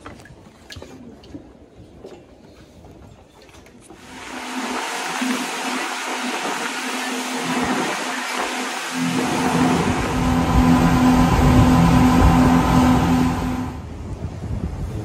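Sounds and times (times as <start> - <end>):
speedboat engine hum: 4.0 - 14.5
rushing wind and water: 4.0 - 15.0.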